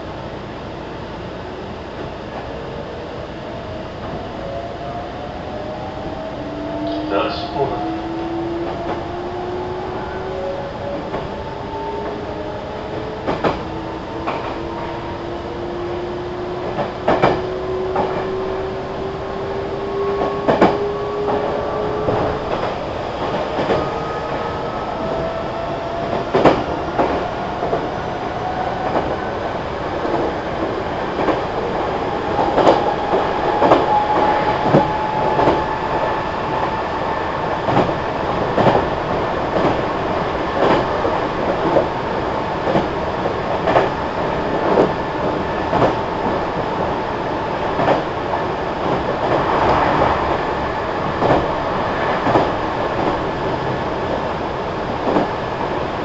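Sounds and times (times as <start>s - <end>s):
train rumble: 0.0s - 56.0s
train wheels clicking over rail joints: 16.6s - 18.4s, 45.7s - 46.4s, 47.8s - 48.1s, 52.2s - 53.2s.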